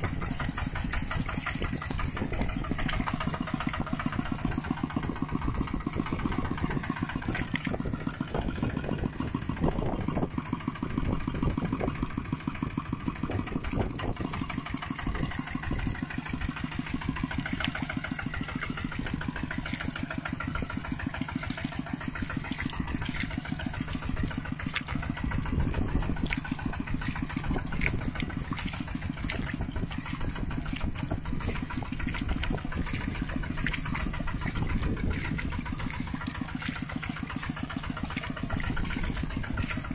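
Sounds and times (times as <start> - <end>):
small tractor engine running: 0.0 - 39.9.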